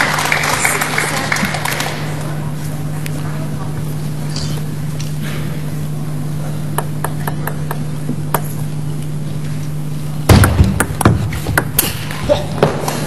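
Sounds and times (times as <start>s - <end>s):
steady low hum: 0.0s - 13.0s
table tennis ball knocking: 10.3s - 11.9s.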